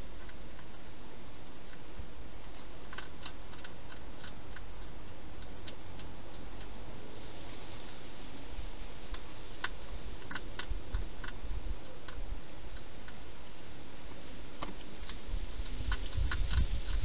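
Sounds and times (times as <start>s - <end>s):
steady hiss: 0.0s - 17.0s
hedgehog chewing clicks: 0.2s - 0.8s, 1.4s - 6.8s, 9.1s - 13.2s, 14.6s - 17.0s.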